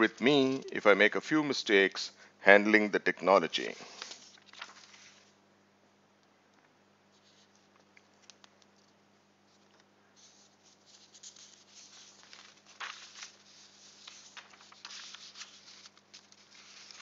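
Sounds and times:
low steady hum: 0:00.0 - 0:17.0
faint clicking and rustling: 0:06.2 - 0:17.0.

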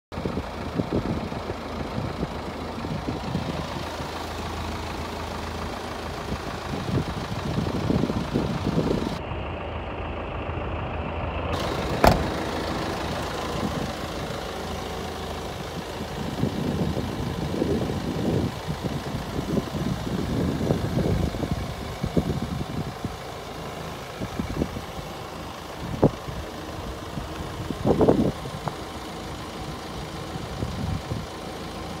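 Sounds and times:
diesel engine idling: 0:00.1 - 0:32.0
sharp knock: 0:12.0 - 0:12.5.

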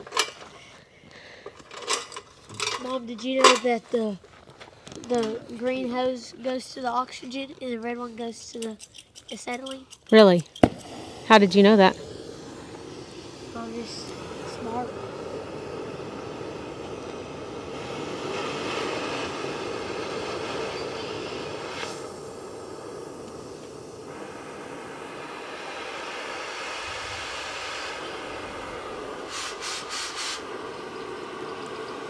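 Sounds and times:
sharp ticks: 0:07.7 - 0:11.0
cutting torch flame hissing: 0:10.6 - 0:32.0.

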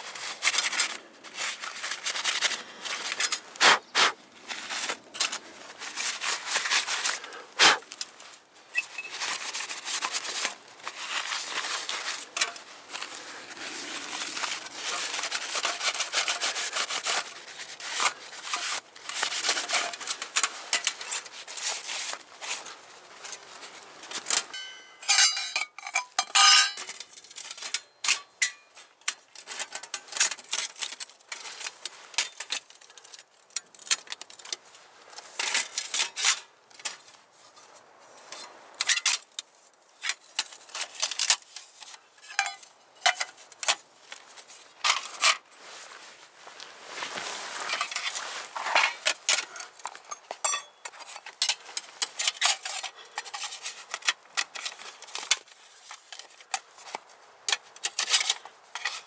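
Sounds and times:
metal stove panels clicking and scraping: 0:24.3 - 0:28.6, 0:42.2 - 0:43.8
ringing metal clinks: 0:24.6 - 0:25.6.

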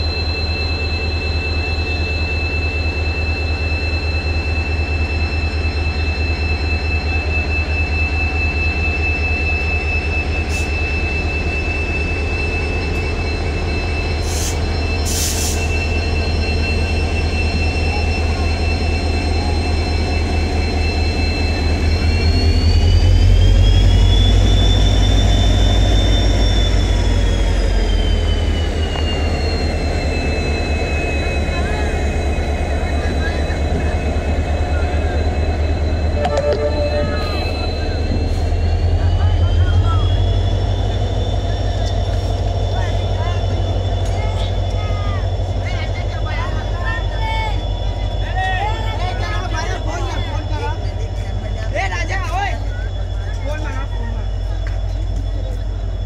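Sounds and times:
locomotive engine throbbing: 0:00.0 - 0:56.0
turbocharger whine: 0:20.1 - 0:43.9.

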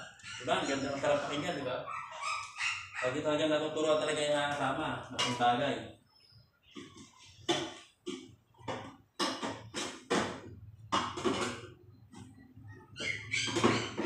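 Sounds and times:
metal knocks and clatters: 0:06.8 - 0:12.4.

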